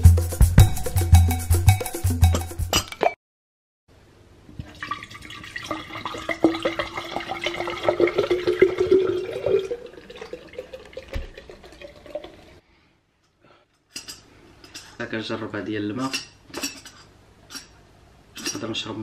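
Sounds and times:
water pouring into glass bottle: 0:04.7 - 0:12.6.

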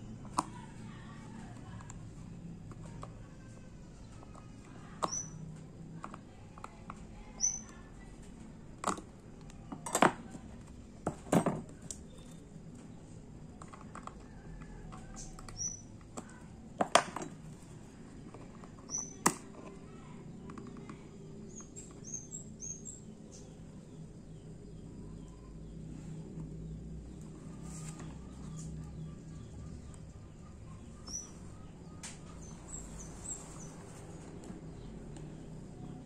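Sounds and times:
bird chirps: 0:04.8 - 0:05.5, 0:07.2 - 0:07.8, 0:14.3 - 0:16.4, 0:18.8 - 0:19.2, 0:27.8 - 0:34.1.

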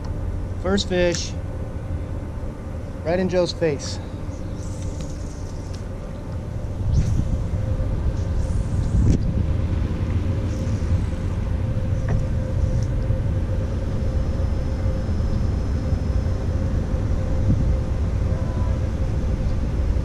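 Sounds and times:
wind buffeting microphone: 0:05.9 - 0:13.6, 0:16.8 - 0:19.8.

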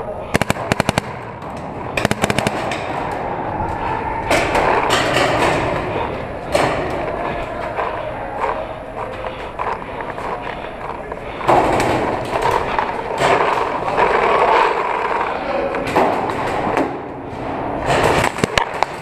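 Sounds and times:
paintball marker firing: 0:00.4 - 0:02.9.

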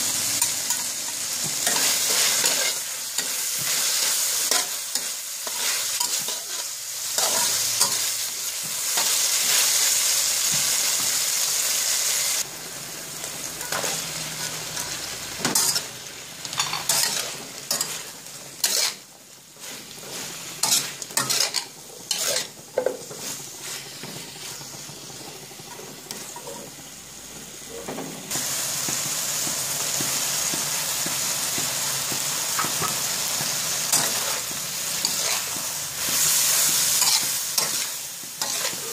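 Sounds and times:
vegetables sizzling in a wok: 0:00.0 - 0:38.9
metal spatula scraping a wok: 0:00.3 - 0:09.9, 0:13.6 - 0:15.9, 0:16.5 - 0:26.7, 0:32.5 - 0:38.9.

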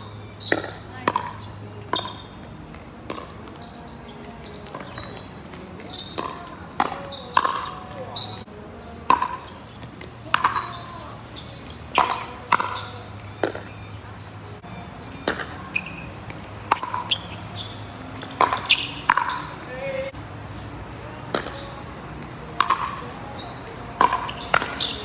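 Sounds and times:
ball bouncing on hard court: 0:00.1 - 0:08.5, 0:09.1 - 0:14.3, 0:15.2 - 0:19.6, 0:21.3 - 0:25.0
paddles hitting plastic ball: 0:00.4 - 0:10.8, 0:11.6 - 0:13.7, 0:16.2 - 0:17.2, 0:18.2 - 0:19.5, 0:21.3 - 0:25.0.

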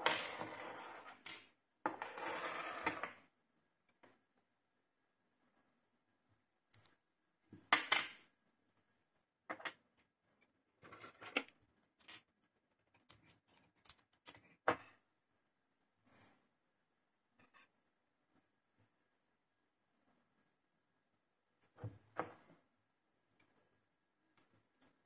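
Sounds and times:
small metal parts clicking: 0:12.9 - 0:14.6.

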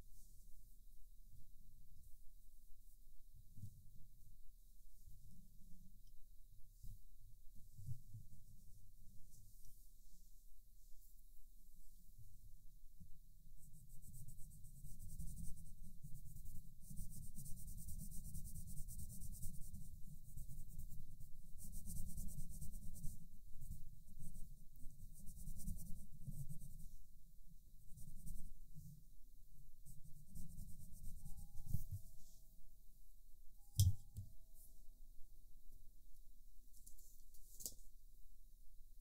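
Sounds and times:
pencil scratching on paper: 0:13.6 - 0:27.1, 0:27.9 - 0:28.6, 0:29.8 - 0:32.4.

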